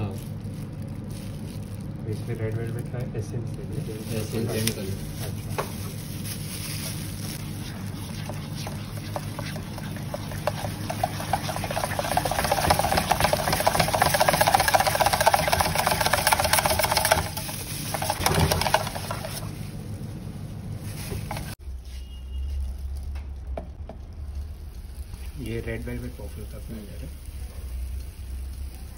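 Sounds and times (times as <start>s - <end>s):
electric whisk whirring: 7.2s - 19.6s
whisk rattling against metal: 7.4s - 19.5s.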